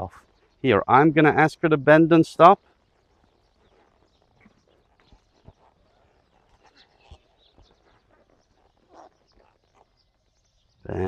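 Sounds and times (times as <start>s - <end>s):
horse hooves thudding: 2.6s - 10.9s.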